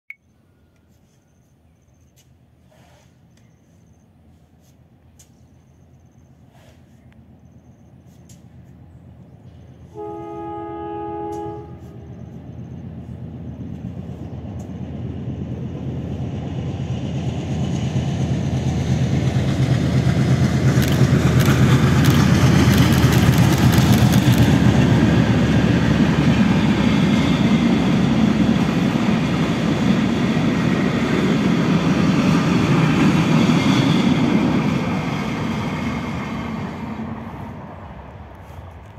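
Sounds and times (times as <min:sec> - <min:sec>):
diesel locomotive engine drone: 0:00.2 - 0:38.9
sharp wheel clicks: 0:20.8 - 0:24.6.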